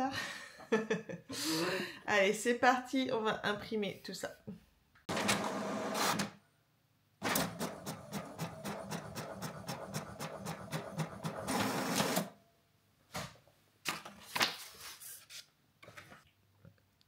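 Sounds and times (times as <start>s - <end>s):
paper feeding out of printer: 5.1s - 6.3s, 7.2s - 12.3s.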